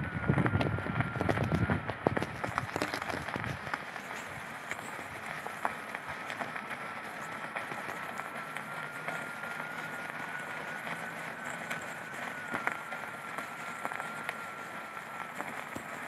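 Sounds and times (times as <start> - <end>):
wind rumble on microphone: 0.0 - 6.3
electric motor high whine: 0.0 - 16.0.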